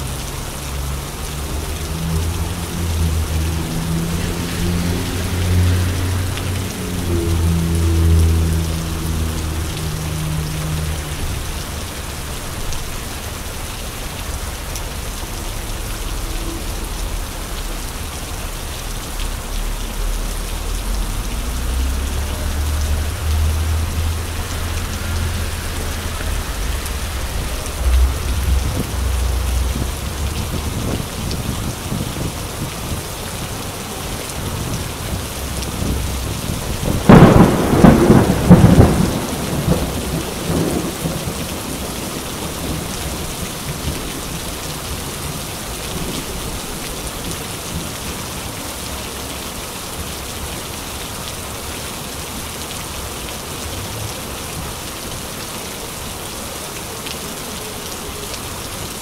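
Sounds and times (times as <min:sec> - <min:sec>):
rain on streets: 0:00.0 - 0:59.0
low rumble: 0:14.1 - 0:32.8
crackling buffeting noise: 0:21.1 - 0:30.8.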